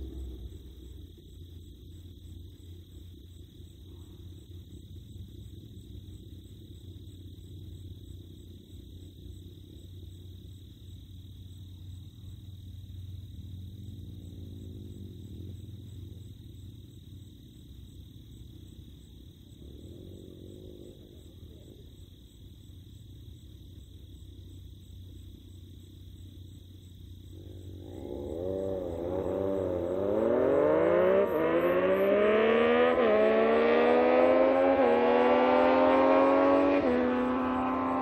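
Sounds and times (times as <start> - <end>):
faint low hum: 0.0 - 32.6
motorcycles accelerating: 27.4 - 38.0.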